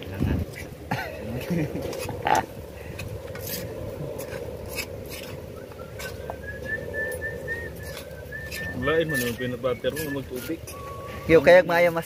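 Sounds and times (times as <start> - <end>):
thin whistling tone: 5.4 - 11.6.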